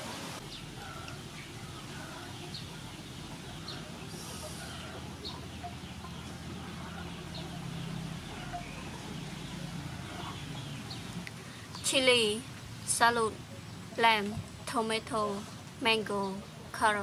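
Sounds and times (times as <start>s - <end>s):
chickens clucking: 0.0s - 11.8s
low steady hum: 0.0s - 17.0s.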